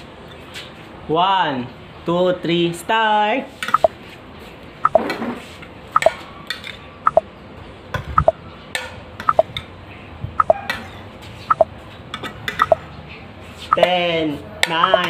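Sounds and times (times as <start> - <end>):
timer ticking: 3.7 - 3.9, 12.6 - 12.8.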